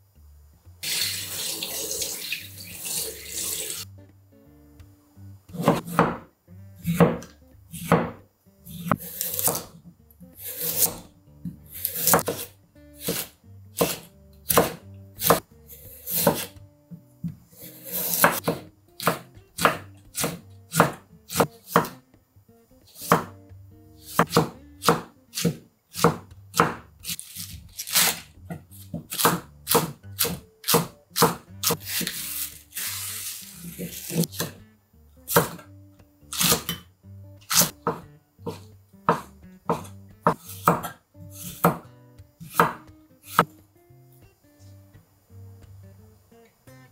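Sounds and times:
cleaver chopping on wooden board: 5.5s - 8.2s, 8.8s - 9.7s, 11.8s - 15.4s, 16.1s - 16.5s, 17.8s - 22.0s, 23.0s - 23.3s, 24.1s - 27.2s, 28.9s - 32.1s, 33.9s - 34.6s, 35.3s - 35.6s, 36.3s - 36.8s, 37.5s - 41.8s, 42.4s - 43.5s.

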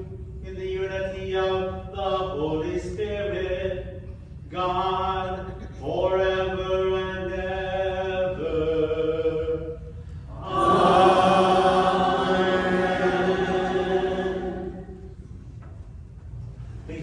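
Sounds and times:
man chanting: 0.4s - 9.8s
congregation singing: 4.5s - 15.2s.

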